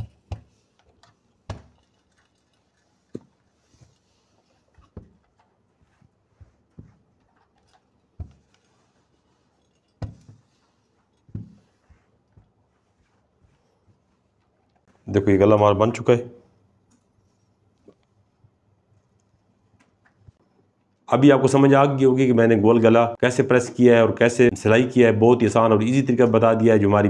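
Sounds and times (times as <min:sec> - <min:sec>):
soft knocks and taps: 0:04.8 - 0:07.5, 0:11.2 - 0:14.2.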